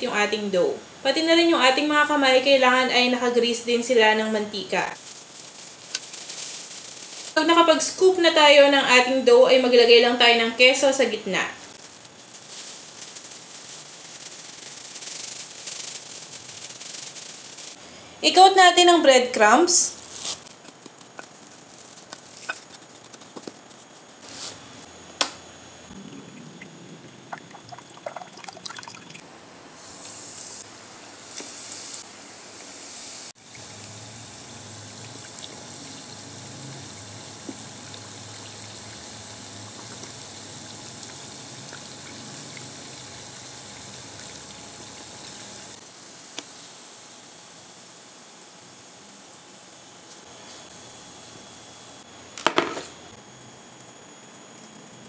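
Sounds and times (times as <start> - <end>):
dough sizzling in hot oil: 5.0 - 11.0, 11.7 - 17.8, 29.8 - 52.1.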